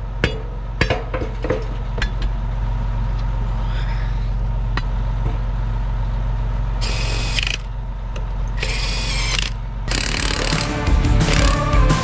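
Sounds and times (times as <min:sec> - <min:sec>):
steady low hum: 0:00.0 - 0:12.0
impact wrench bursts: 0:06.8 - 0:07.7, 0:08.6 - 0:11.8.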